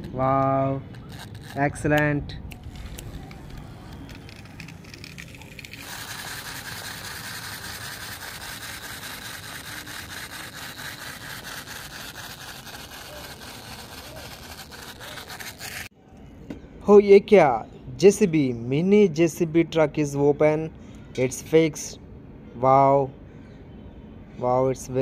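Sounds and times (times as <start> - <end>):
toy motor whirring: 0.0 - 15.9
gears clicking: 0.9 - 15.9.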